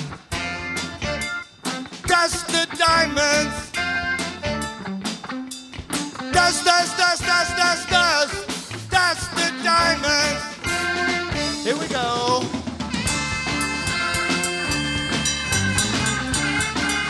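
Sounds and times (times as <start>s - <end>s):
rock band playing live: 0.0s - 17.0s
person singing: 2.1s - 3.7s, 6.3s - 12.6s.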